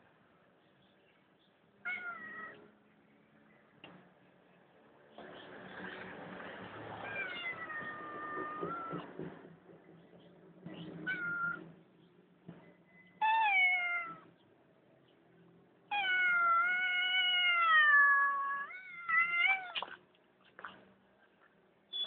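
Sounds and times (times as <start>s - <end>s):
cat yowling: 1.9s - 2.6s, 7.0s - 9.1s, 11.0s - 11.7s, 13.2s - 14.3s, 15.9s - 19.8s.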